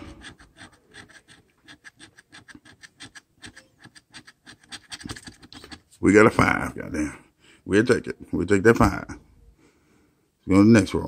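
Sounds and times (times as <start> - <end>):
coin scraping scratch-off ticket: 0.0 - 5.9.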